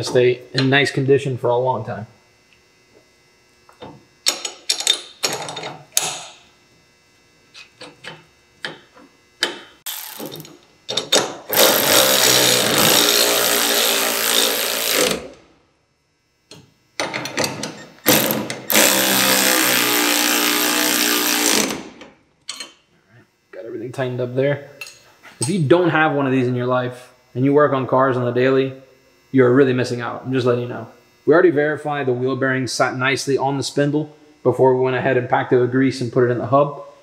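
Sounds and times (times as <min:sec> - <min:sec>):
electric ratchet running: 0:09.9 - 0:15.4, 0:18.0 - 0:22.0.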